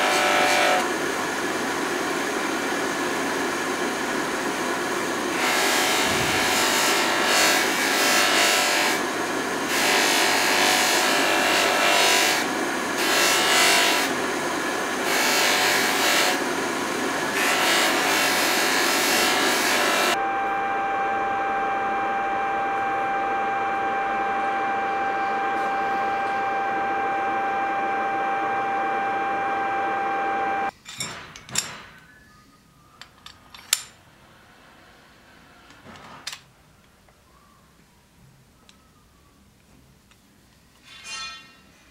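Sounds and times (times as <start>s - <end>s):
grinder motor whine: 0.0s - 3.0s, 3.6s - 30.7s
wood rubbing on buffing wheel: 5.3s - 9.0s.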